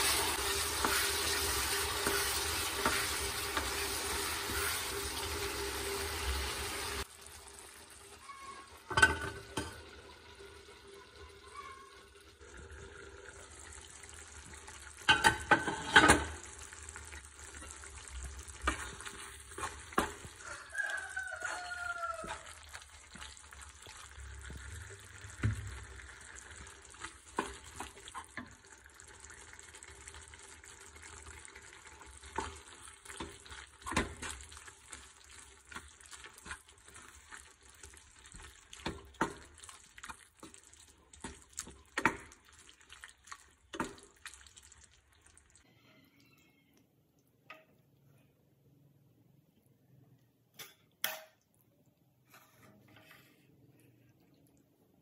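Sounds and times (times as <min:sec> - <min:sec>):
wooden spatula scraping a pan: 0:00.0 - 0:07.0, 0:18.4 - 0:23.4, 0:52.3 - 0:53.6
faint sizzle: 0:00.0 - 0:48.6.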